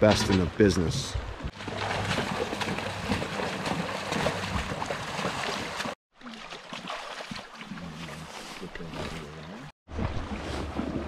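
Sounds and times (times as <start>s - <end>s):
boat dragged through water: 1.5s - 11.0s
splashing from wading legs: 1.6s - 10.6s
river water over gravel: 1.6s - 11.0s.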